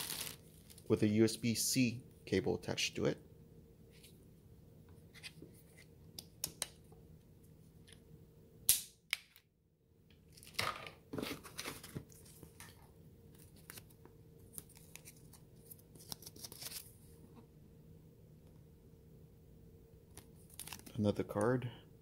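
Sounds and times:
foam packing rustling: 0.0s - 0.9s
paper slip crinkling: 0.0s - 0.9s, 13.4s - 17.0s, 20.2s - 21.0s.

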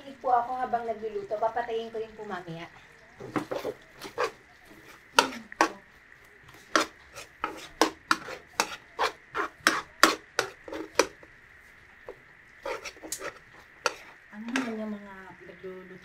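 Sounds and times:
knife chopping on wooden board: 6.8s - 11.1s.

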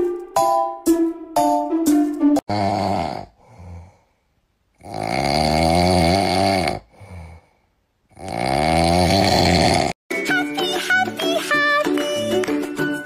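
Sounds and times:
loud snoring: 2.5s - 4.0s, 4.8s - 7.5s, 8.1s - 10.0s
soft breath: 3.3s - 4.4s, 6.8s - 7.9s.

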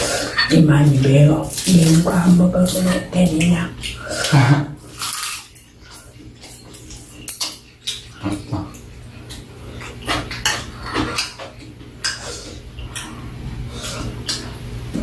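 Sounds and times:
metal utensils clinking against bowls: 0.0s - 12.3s.

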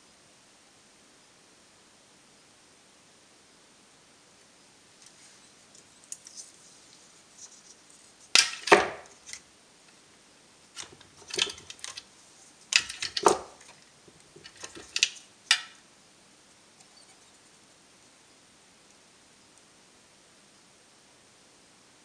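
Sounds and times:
tools clattering on a workbench: 8.4s - 9.4s, 10.8s - 12.0s, 12.7s - 15.8s.

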